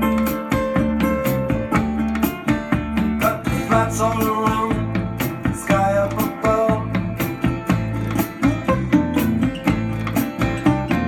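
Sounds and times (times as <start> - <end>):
music with guitar and beat: 0.0 - 11.0.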